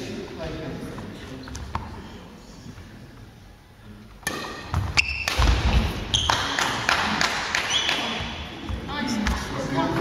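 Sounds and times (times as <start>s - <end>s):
racket striking shuttlecock: 4.2s - 8.2s
shoes squeaking on floor: 4.7s - 5.5s, 6.1s - 6.4s.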